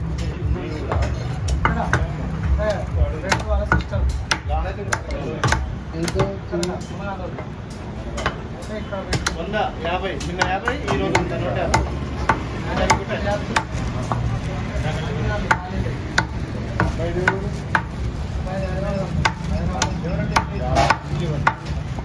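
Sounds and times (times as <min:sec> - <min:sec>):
cleaver chopping on wooden block: 0:03.2 - 0:06.8, 0:09.1 - 0:09.4, 0:10.2 - 0:14.3, 0:19.2 - 0:21.8.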